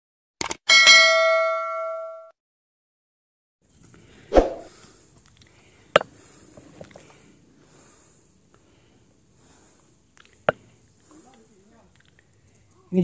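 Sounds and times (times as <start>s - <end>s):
person breathing hard: 4.6s - 10.0s.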